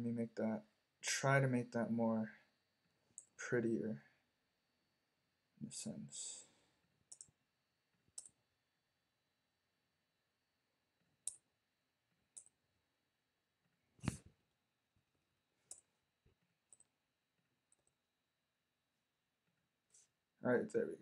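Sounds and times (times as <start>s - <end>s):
computer mouse clicks: 7.1s - 7.4s, 8.2s - 8.4s, 11.2s - 11.4s, 15.7s - 15.9s.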